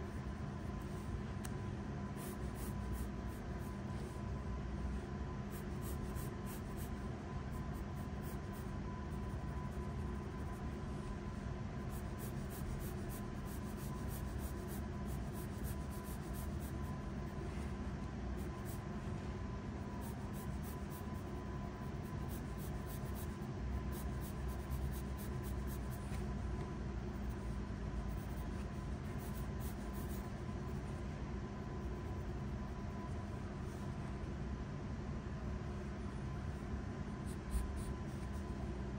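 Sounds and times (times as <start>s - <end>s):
low background hum: 0.0s - 38.9s
pencil scratching on paper: 0.1s - 1.4s, 2.1s - 19.3s, 19.9s - 26.4s, 27.0s - 31.0s.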